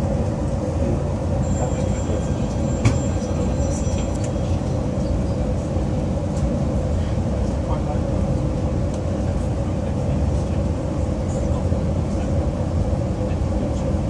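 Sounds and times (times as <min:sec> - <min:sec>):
train rumble inside carriage: 0:00.0 - 0:14.0
faint high whine: 0:01.4 - 0:05.4.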